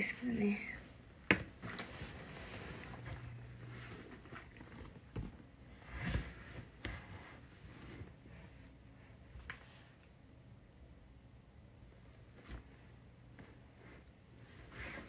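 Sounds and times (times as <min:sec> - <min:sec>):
handling knocks and rustles: 0:01.2 - 0:08.2.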